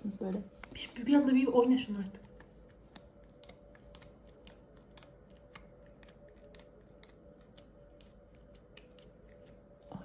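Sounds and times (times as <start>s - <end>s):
fingers pressing slime: 2.2s - 10.0s.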